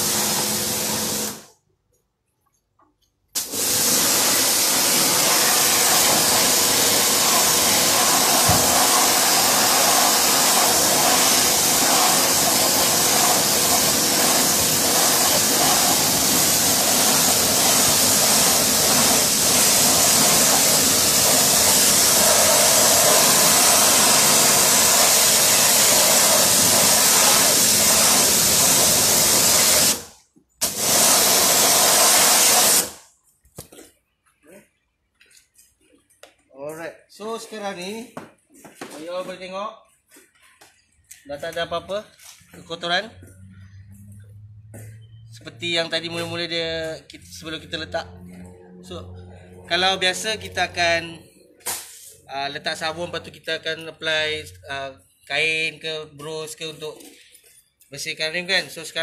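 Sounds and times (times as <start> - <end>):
pressure washer water jet hissing: 0.0 - 1.5, 3.4 - 33.1.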